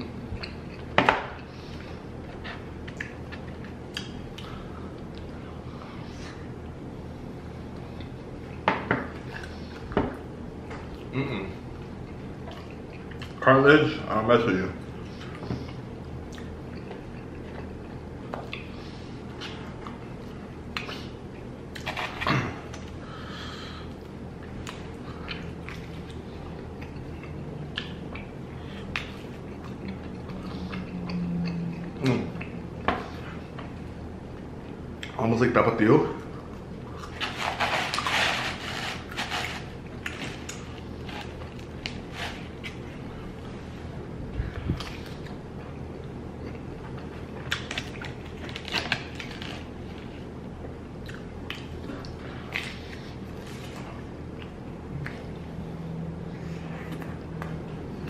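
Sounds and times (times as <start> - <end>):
steady low hum: 0.0 - 58.0
wet mouth chewing sounds: 0.3 - 5.3, 24.0 - 35.2, 50.6 - 55.4
pizza tearing rustle: 37.0 - 43.1, 47.6 - 50.3.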